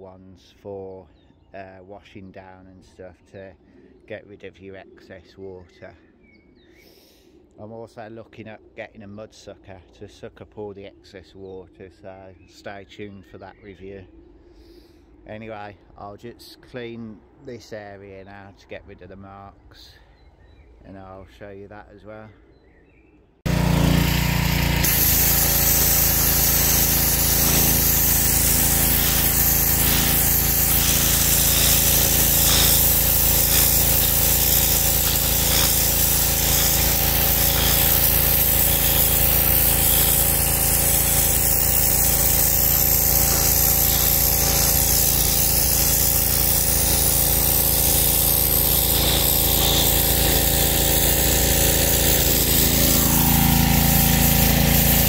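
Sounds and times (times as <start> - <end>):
pressure washer engine running: 23.5 - 55.0
water jet hissing on concrete: 23.5 - 55.0.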